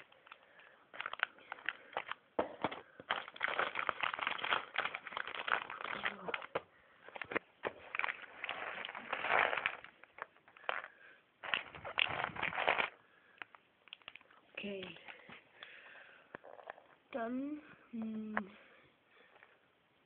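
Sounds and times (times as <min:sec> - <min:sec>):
plastic crinkling and rustling: 0:00.0 - 0:15.4
scissors cutting plastic bag: 0:03.1 - 0:06.6.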